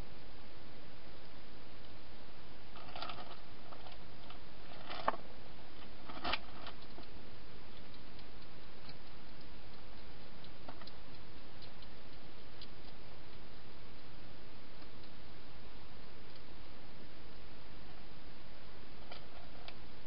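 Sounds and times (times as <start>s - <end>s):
steady hiss: 0.0s - 20.0s
hedgehog feeding clicks and taps: 5.8s - 13.4s.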